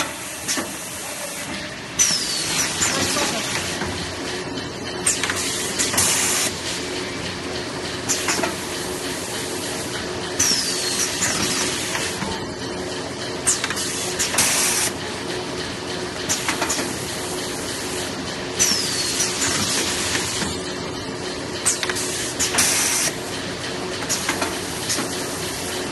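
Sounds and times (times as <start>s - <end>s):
packing machine humming: 0.0s - 25.9s.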